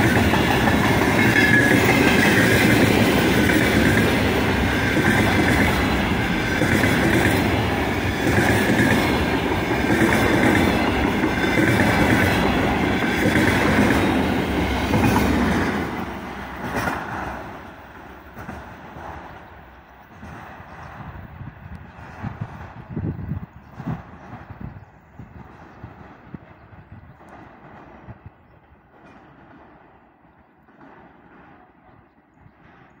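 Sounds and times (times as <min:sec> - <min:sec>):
train wheels clattering over rails: 0:00.0 - 0:33.0.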